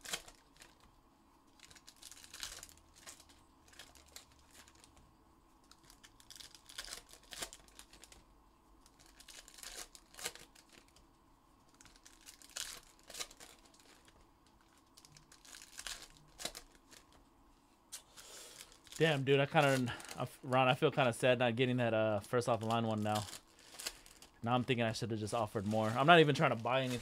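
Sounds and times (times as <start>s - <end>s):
pack wrappers crinkling and tearing: 0.0s - 0.9s, 1.5s - 5.0s, 5.6s - 8.2s, 8.8s - 11.0s, 11.7s - 17.2s, 18.0s - 20.7s, 22.1s - 27.0s.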